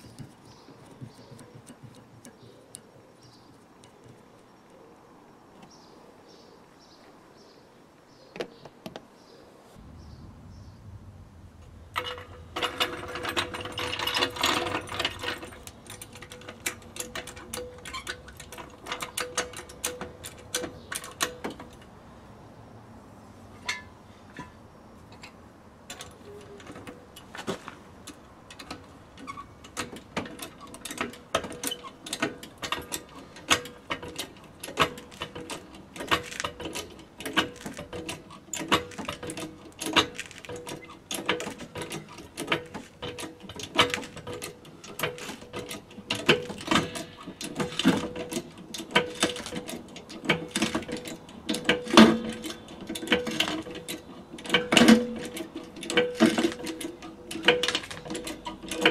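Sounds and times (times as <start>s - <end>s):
trolley jack clattering on concrete: 0.0s - 4.3s, 12.0s - 21.9s, 23.6s - 58.9s.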